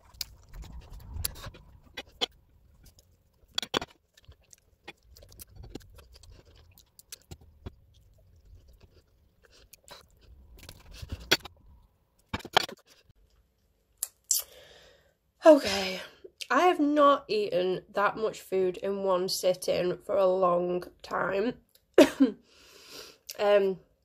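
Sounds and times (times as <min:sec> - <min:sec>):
person chewing food: 0:00.0 - 0:14.5
short mouth clicks: 0:14.0 - 0:14.6.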